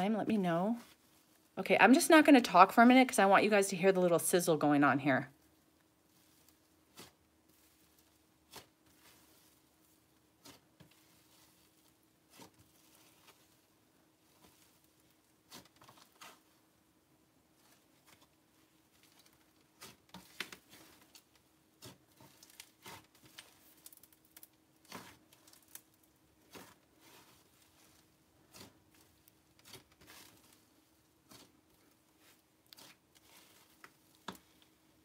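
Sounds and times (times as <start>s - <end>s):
slime being kneaded by hand: 5.4s - 35.0s
slime crackling and popping: 6.1s - 16.6s, 17.6s - 34.7s.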